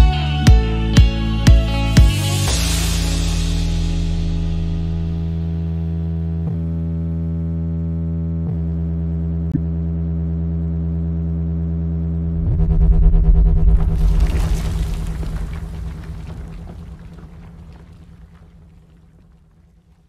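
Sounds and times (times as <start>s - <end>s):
deep low rumble: 2.5s - 6.7s, 12.1s - 20.0s.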